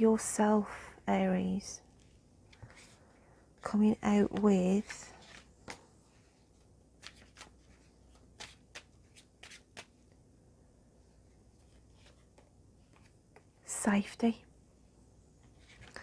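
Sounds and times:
cards being shuffled: 4.1s - 5.9s, 7.0s - 10.1s.

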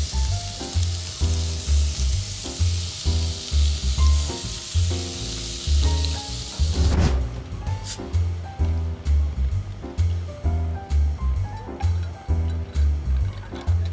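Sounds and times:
steaks sizzling on grill: 0.0s - 7.0s, 7.8s - 8.1s
music with pulsing bass: 1.2s - 13.9s.

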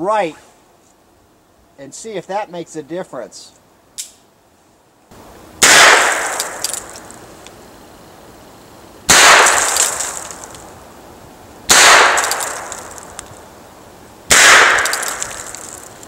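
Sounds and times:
revolver gunshots: 5.6s - 6.9s, 9.1s - 10.4s, 11.7s - 12.9s, 14.3s - 15.6s.

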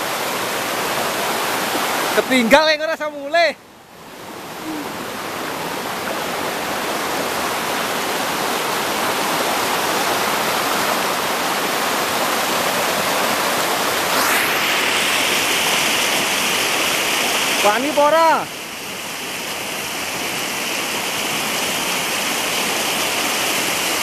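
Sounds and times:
river rushing over boulders: 0.0s - 24.0s.

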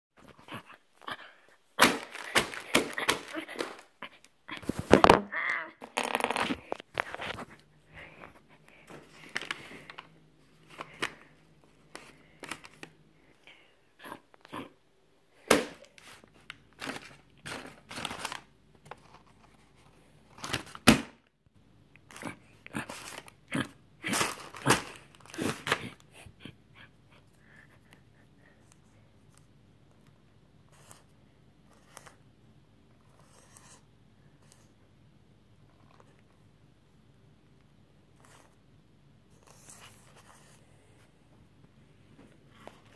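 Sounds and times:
paper bag rustling and crinkling: 1.8s - 3.9s, 8.8s - 13.0s, 15.5s - 20.9s, 24.0s - 26.0s
sharp paper crackles: 1.8s - 3.9s, 9.0s - 12.9s, 15.5s - 19.5s.

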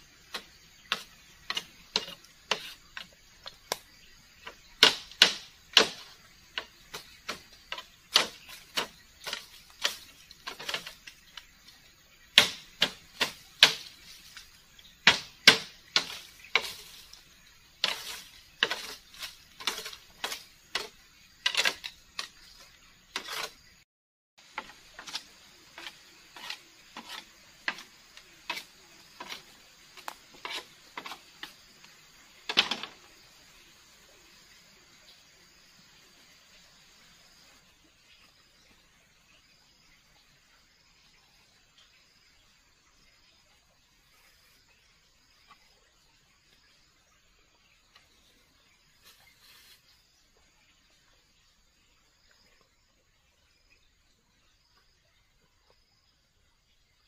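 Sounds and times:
machete chopping on bamboo floor: 0.2s - 11.5s, 12.3s - 17.2s, 17.8s - 23.5s, 24.5s - 31.6s.

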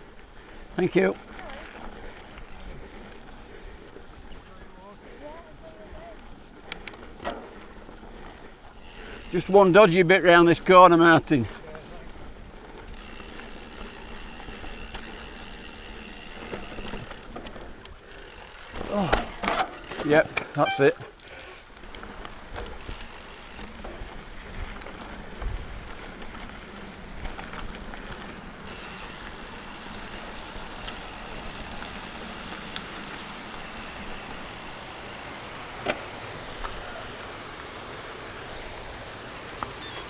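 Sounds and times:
bike tyres on rough trail: 0.0s - 40.0s
bike rattles and knocks: 6.6s - 7.6s, 12.6s - 21.2s, 35.5s - 36.6s
bike clattering: 6.6s - 7.7s, 11.4s - 36.8s.

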